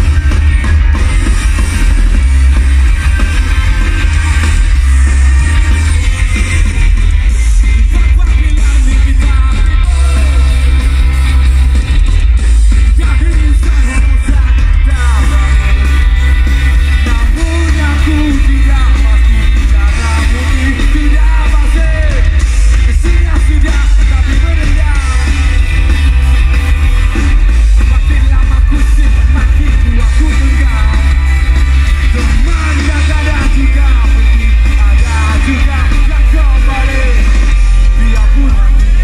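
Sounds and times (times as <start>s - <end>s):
live rock band playing: 0.0s - 39.0s
person singing: 7.4s - 11.7s, 12.8s - 25.4s, 32.0s - 39.0s.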